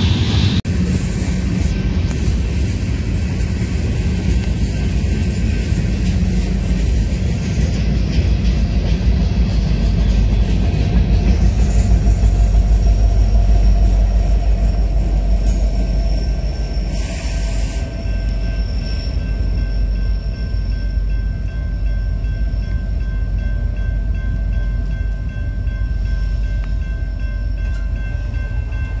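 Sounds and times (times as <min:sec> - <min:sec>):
freight train rumbling past: 0:00.0 - 0:29.0
crossing warning bell ringing: 0:01.5 - 0:29.0.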